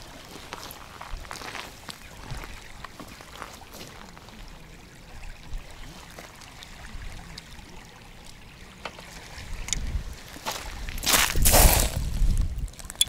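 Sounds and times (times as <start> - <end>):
small waves lapping on shingle: 0.0 - 13.0
low wind rumble: 9.3 - 12.8.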